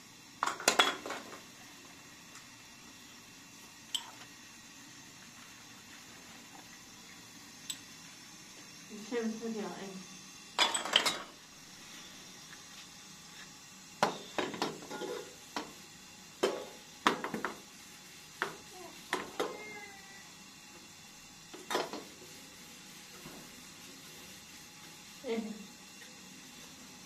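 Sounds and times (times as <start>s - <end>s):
metal teapot clanking: 10.6s - 11.3s.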